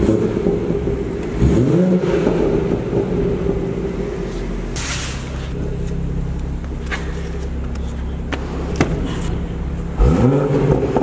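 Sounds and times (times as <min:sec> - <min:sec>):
car engine running: 0:00.0 - 0:11.0
engine starting and revving: 0:01.3 - 0:02.9, 0:08.5 - 0:11.0.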